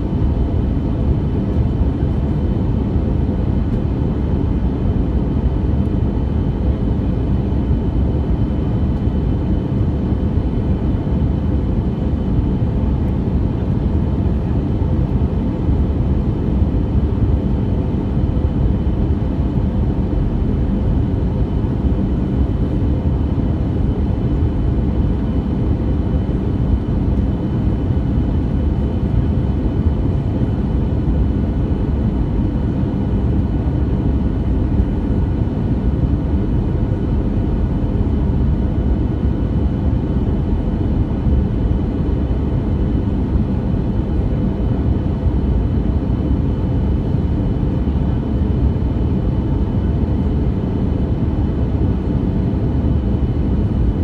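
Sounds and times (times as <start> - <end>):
airplane cabin drone: 0.0 - 54.0.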